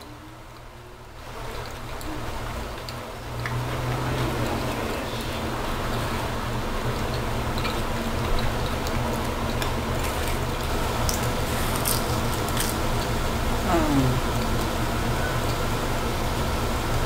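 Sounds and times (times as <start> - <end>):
steady hum and hiss: 0.0 - 17.0
crisp pizza crust crunching: 7.0 - 13.2.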